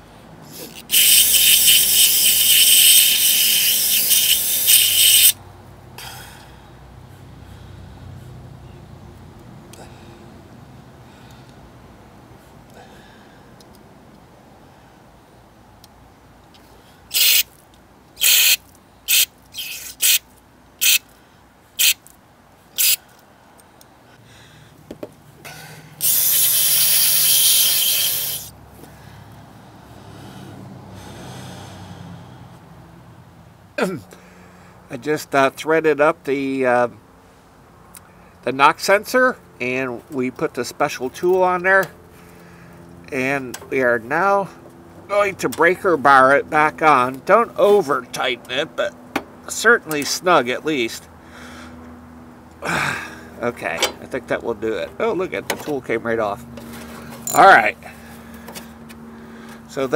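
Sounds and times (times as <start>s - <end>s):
aerosol can spraying hiss: 0.9s - 5.4s, 26.0s - 28.5s.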